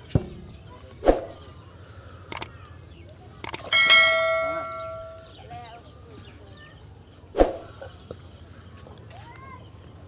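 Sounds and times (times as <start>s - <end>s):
mouse clicks: 2.3s - 2.5s
bright ringing bell chime: 3.7s - 5.4s.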